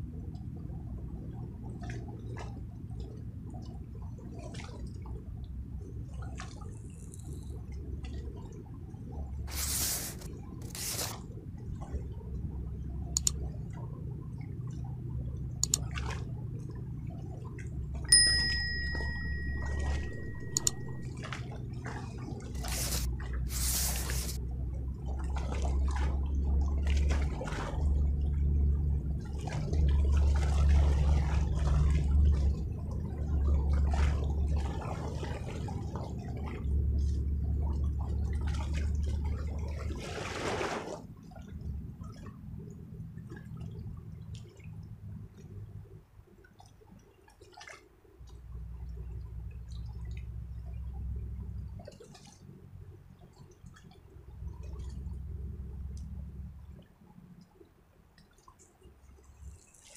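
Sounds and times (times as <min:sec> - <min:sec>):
clear ding: 0:18.1 - 0:21.1.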